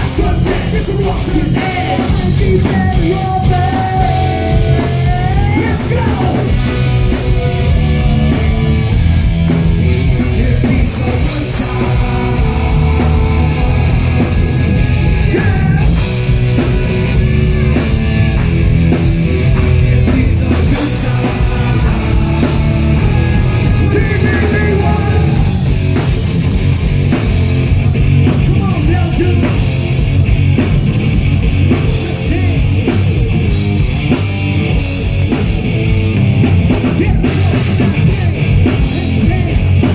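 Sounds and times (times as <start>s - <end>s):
person singing: 0.0s - 6.6s, 10.0s - 16.0s, 19.7s - 25.6s
bass guitar: 0.0s - 39.9s
drum kit: 0.0s - 39.9s
electric guitars: 0.0s - 39.9s.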